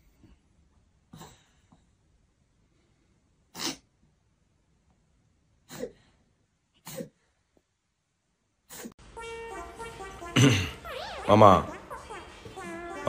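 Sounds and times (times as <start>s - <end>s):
sharp sneeze-like bursts: 3.5s - 3.9s, 6.8s - 7.2s.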